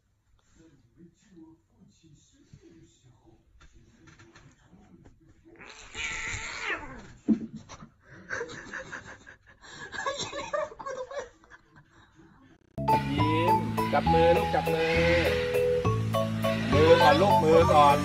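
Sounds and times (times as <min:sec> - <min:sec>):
cat meowing: 0:05.5 - 0:07.1.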